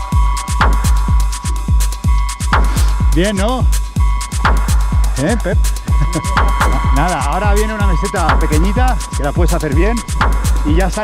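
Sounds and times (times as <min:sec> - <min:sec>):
deep kick drums: 0:00.0 - 0:11.0
fast ticking hi-hats: 0:00.0 - 0:11.0
held synth tone: 0:05.5 - 0:10.7.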